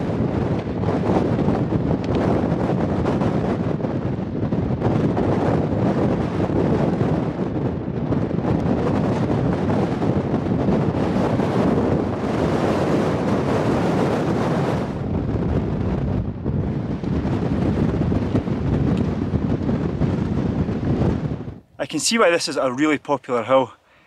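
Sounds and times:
strong wind buffeting microphone: 0.0 - 23.8.

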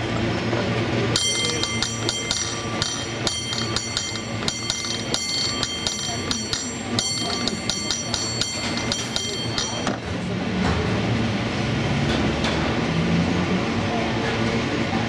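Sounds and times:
hand-rung bell strikes: 1.1 - 10.1.

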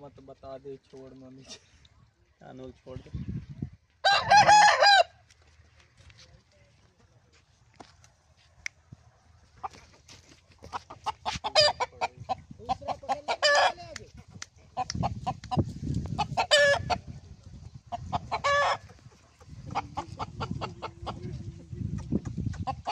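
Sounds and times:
rooster squawking call: 4.0 - 5.2
rooster clucking: 9.4 - 17.2, 17.8 - 22.9.

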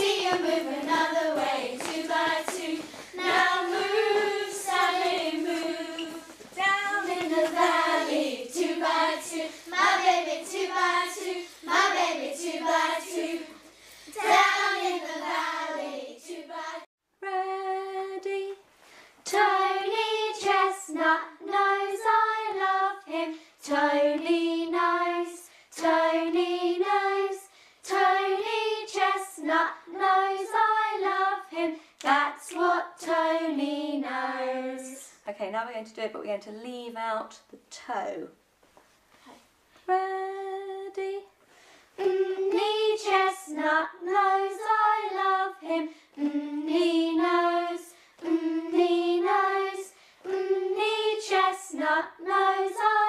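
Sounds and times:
children singing together: 0.0 - 18.5, 19.3 - 35.0, 42.0 - 53.0.

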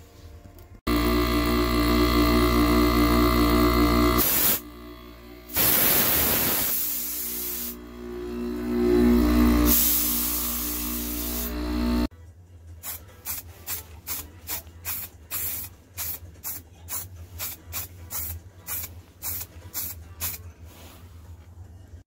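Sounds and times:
air compressor humming: 0.9 - 12.1
air hissing from blow gun: 4.2 - 4.6, 5.5 - 7.8, 9.7 - 11.5.

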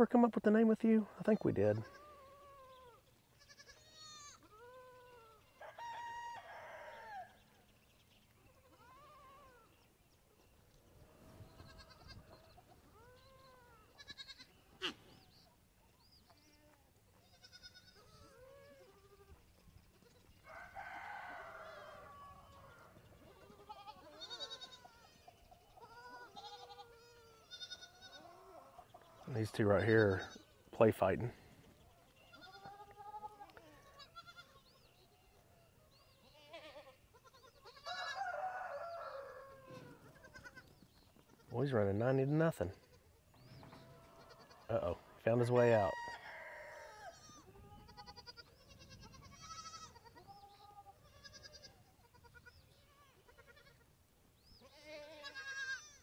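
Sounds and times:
goat kids bleating: 1.6 - 5.6, 8.4 - 9.8, 11.4 - 15.1, 16.3 - 20.4, 21.4 - 30.6, 32.1 - 34.9, 36.0 - 38.2, 39.6 - 56.0.

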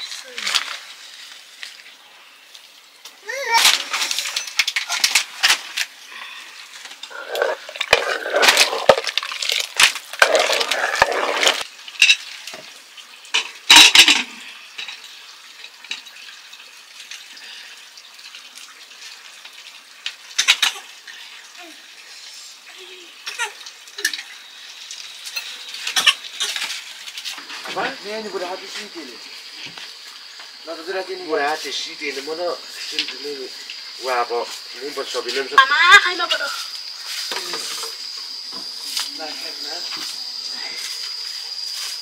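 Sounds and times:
metal ladle scraping a pot: 10.2 - 11.6.

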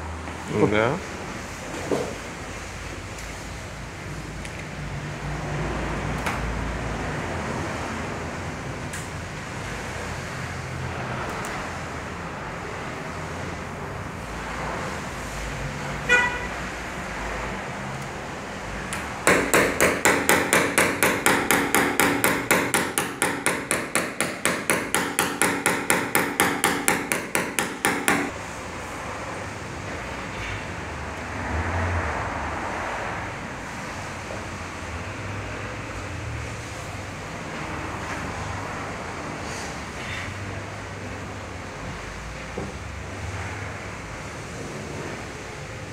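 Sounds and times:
hammer tapping on metal: 18.9 - 28.4.

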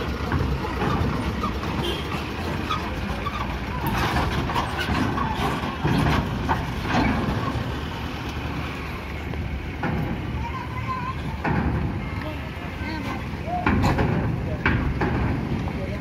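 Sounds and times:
people's voices: 0.0 - 16.0
truck engine running: 0.0 - 16.0
knocks on steel ramp: 11.3 - 12.0, 13.5 - 15.8.

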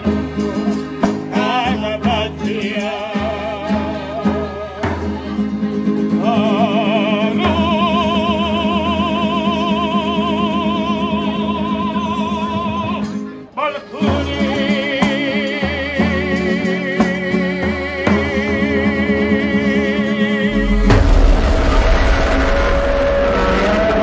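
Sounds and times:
accordion: 0.0 - 8.7
acoustic guitar: 0.0 - 24.0
man singing: 1.3 - 4.8, 6.1 - 21.2.

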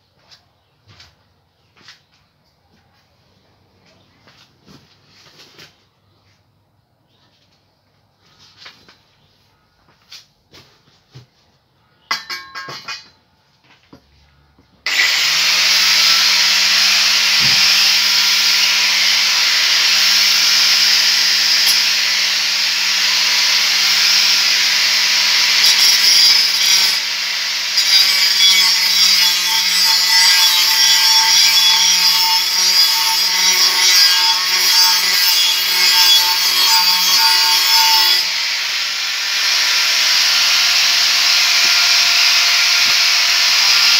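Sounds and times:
angle grinder grinding steel: 14.9 - 43.9.

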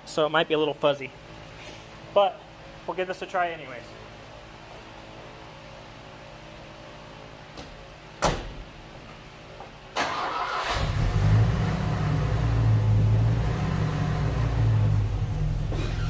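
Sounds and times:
engine cranking and idling: 10.0 - 16.0.

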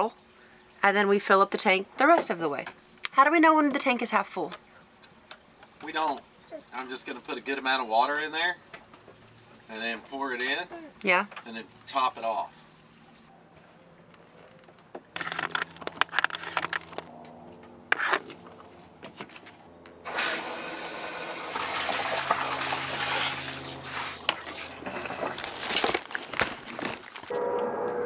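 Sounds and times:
rustling: 13.6 - 17.1, 23.2 - 27.4
water rushing through a hose: 20.0 - 27.3.

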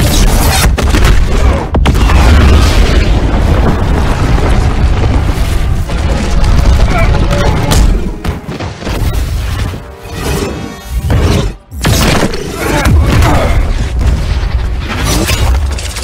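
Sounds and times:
heavy booming rumble: 1.5 - 8.4.

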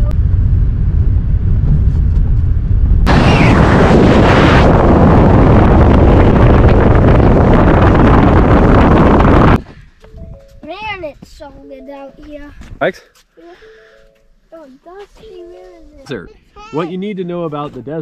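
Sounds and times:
wind rush and tyre noise: 0.0 - 9.9.

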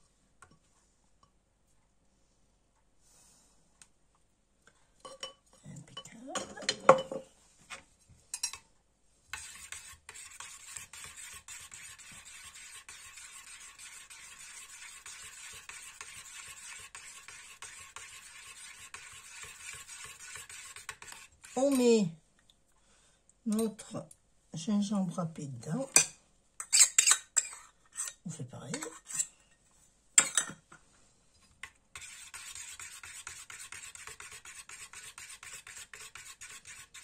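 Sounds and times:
metal spoon scraping metal bowl: 9.4 - 21.9, 26.0 - 29.4, 32.0 - 37.0.

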